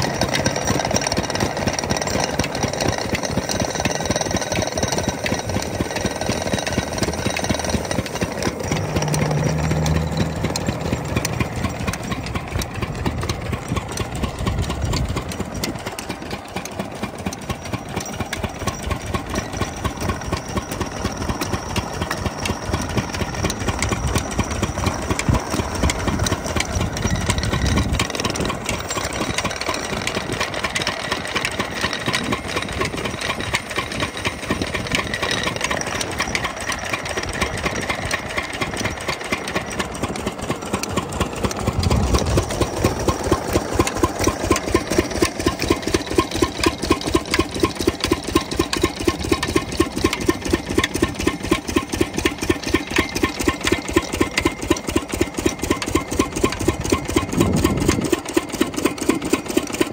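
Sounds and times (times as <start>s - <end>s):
diesel engine knocking steadily: 0.0s - 59.9s
deep hum: 8.6s - 13.3s.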